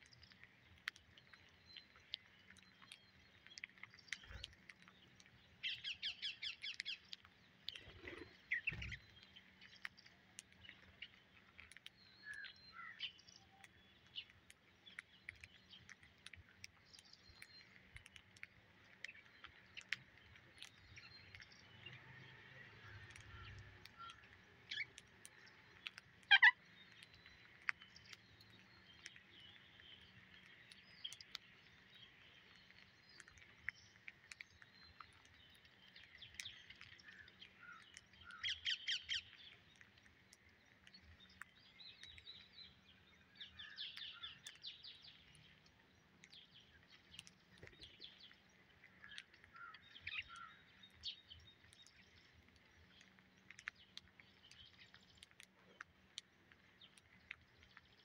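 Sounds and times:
parakeets calling and chirping: 0:26.3 - 0:26.6.

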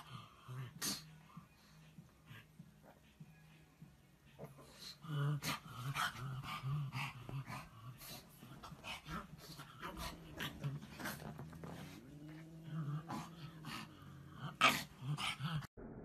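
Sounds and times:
dog grunting and snorting: 0:04.4 - 0:15.7
bedding rustling: 0:05.8 - 0:15.0.

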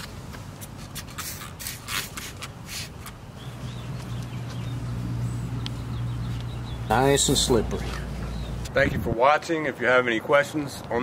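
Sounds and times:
spray bottle squirting: 0:00.6 - 0:03.2.

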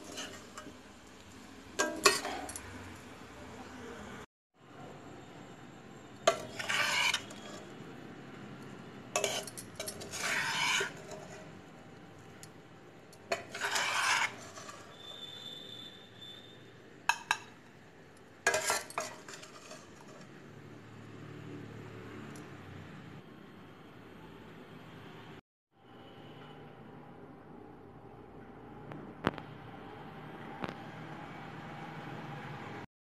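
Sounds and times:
metal spatula scraping pan: 0:00.0 - 0:01.0, 0:01.8 - 0:02.7, 0:06.3 - 0:07.8, 0:09.2 - 0:11.7, 0:13.2 - 0:15.6, 0:18.5 - 0:20.4.

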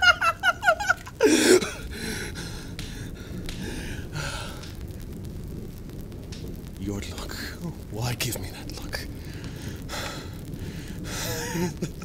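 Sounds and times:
man laughing: 0:00.0 - 0:01.7, 0:11.1 - 0:12.0
background hiss: 0:00.0 - 0:12.0.

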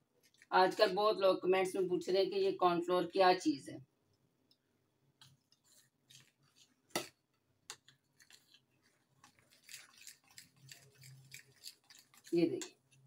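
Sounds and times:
stirring in glass bowl: 0:05.2 - 0:13.0.

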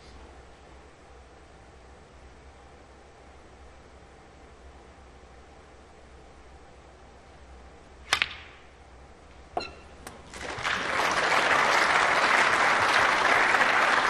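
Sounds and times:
audience applauding: 0:10.2 - 0:14.0.

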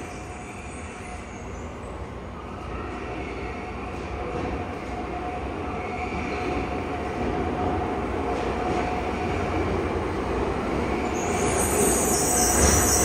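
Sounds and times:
subway train rumble: 0:00.0 - 0:13.0
high-pitched brake squeal: 0:11.0 - 0:13.0.

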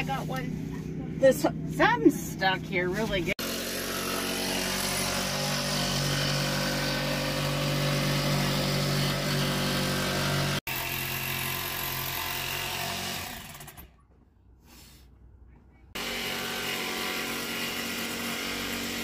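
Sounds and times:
jigsaw cutting wood: 0:03.4 - 0:14.0, 0:16.0 - 0:19.0.

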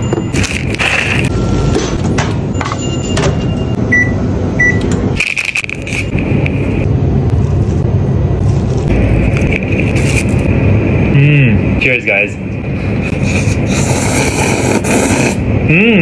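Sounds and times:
steady machine hum: 0:00.0 - 0:16.0
electronic appliance beeps: 0:02.5 - 0:05.0.

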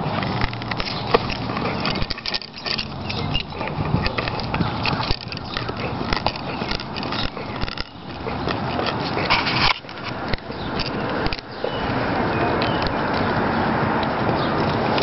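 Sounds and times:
dog gnawing on wooden stick: 0:00.0 - 0:15.0.

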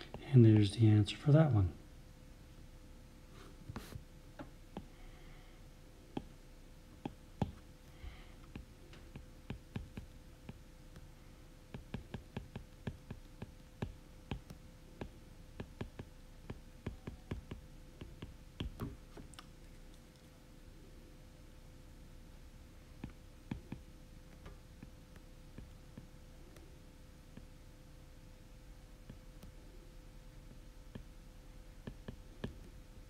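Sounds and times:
faint steady hum: 0:00.0 - 0:33.0
stylus tapping on glass screen: 0:08.5 - 0:10.6, 0:11.7 - 0:19.0, 0:23.0 - 0:23.9, 0:31.8 - 0:32.7.

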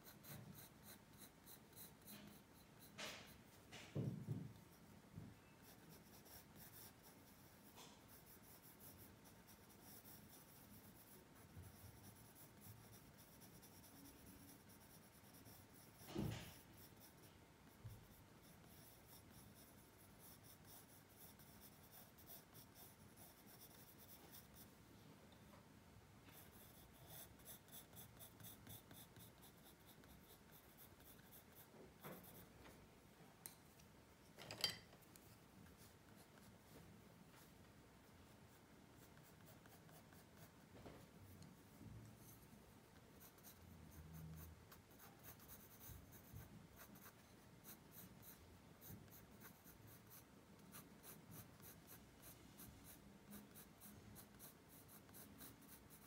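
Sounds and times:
pencil scratching on paper: 0:00.0 - 0:24.8, 0:26.2 - 0:32.6, 0:35.2 - 0:56.0
knock on drawing surface: 0:03.0 - 0:04.6, 0:16.1 - 0:16.5.

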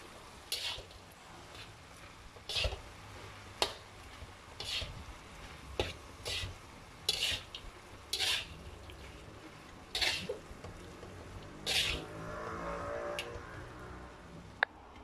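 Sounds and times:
metal spatula scraping a wok: 0:00.5 - 0:03.9, 0:04.6 - 0:10.5, 0:11.6 - 0:13.7.

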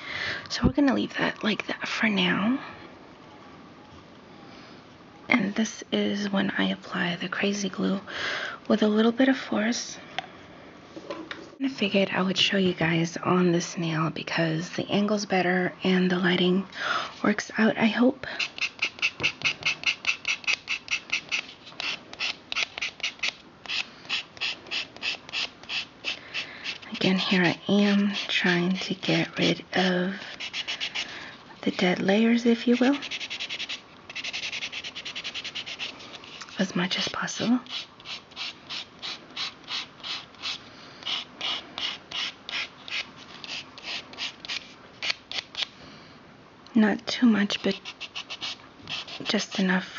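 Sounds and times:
nail file scraping fingernail: 0:18.4 - 0:28.3, 0:32.6 - 0:45.7, 0:47.6 - 0:49.5.

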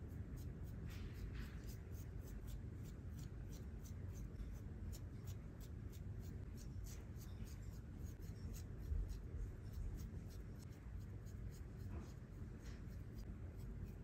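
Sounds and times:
razor scraping stubble: 0:00.4 - 0:14.0.

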